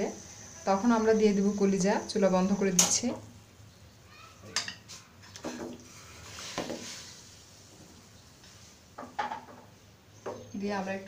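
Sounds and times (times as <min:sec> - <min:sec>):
water splashes and clatters: 0:05.2 - 0:06.8.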